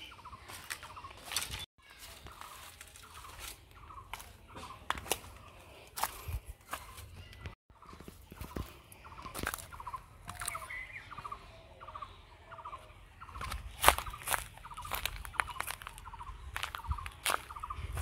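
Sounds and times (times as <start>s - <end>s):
footsteps crunching dry leaves: 0.0s - 7.3s, 7.9s - 10.9s, 13.4s - 18.0s.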